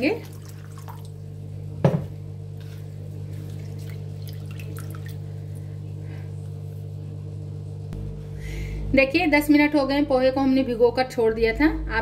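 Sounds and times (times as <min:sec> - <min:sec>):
steady low hum: 0:00.0 - 0:12.0
faint small splashes: 0:00.2 - 0:01.2, 0:03.3 - 0:05.6
water jug knocking on stone counter: 0:01.8 - 0:02.1.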